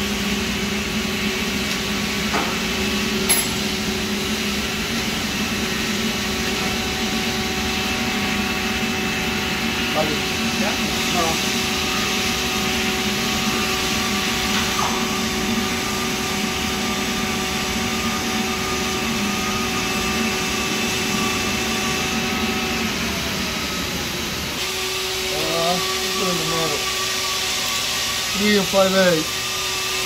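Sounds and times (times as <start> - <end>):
machinery hum and whir: 0.0 - 30.0.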